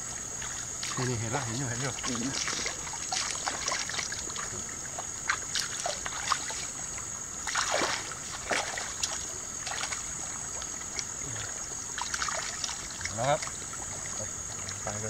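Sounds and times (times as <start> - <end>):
steady high-pitched hiss: 0.0 - 15.0
hands splashing in water: 2.0 - 4.6, 5.2 - 6.8, 7.4 - 10.1.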